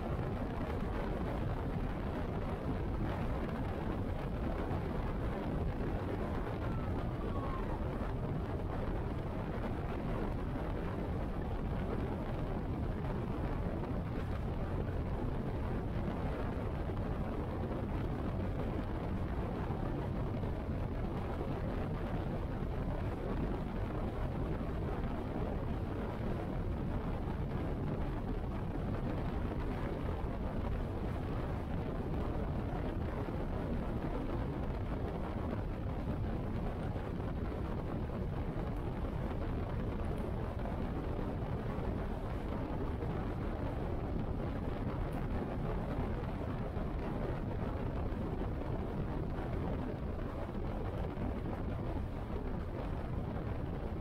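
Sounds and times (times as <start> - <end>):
wind noise on microphone: 0.0 - 54.0
wind rushing: 2.6 - 19.3.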